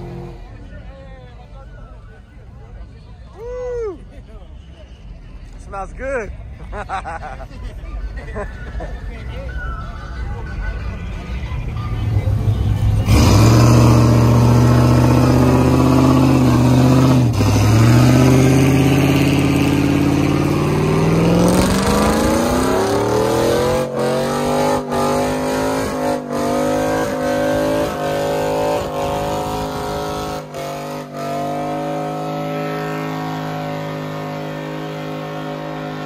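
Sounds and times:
pickup engine revving hard: 12.9s - 36.0s.

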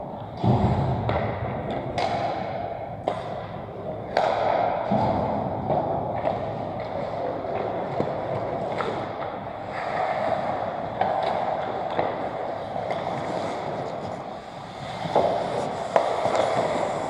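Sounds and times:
skate blades scraping ice: 6.4s - 17.0s.

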